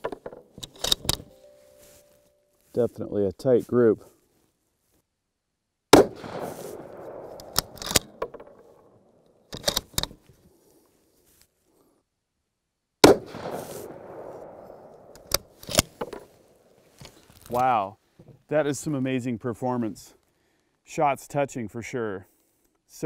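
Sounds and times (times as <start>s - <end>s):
rifle bolt metallic clicks: 0.0s - 1.4s, 6.2s - 8.6s, 9.5s - 10.2s, 14.9s - 16.2s
rifle shots echoing: 5.9s - 9.1s, 13.0s - 16.7s.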